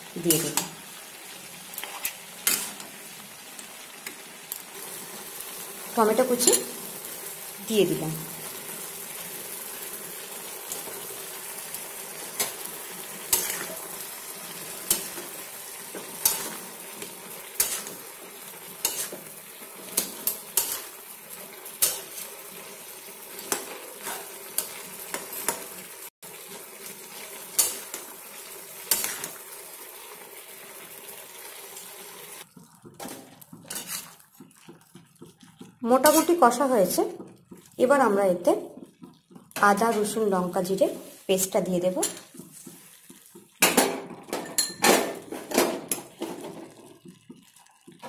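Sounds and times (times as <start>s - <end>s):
meat sizzling in a metal pan: 0.0s - 34.7s, 35.8s - 37.2s, 39.6s - 48.0s
metal spatula scraping a pan: 1.8s - 3.0s, 12.0s - 25.7s, 27.1s - 28.1s, 28.8s - 29.4s, 33.0s - 34.2s.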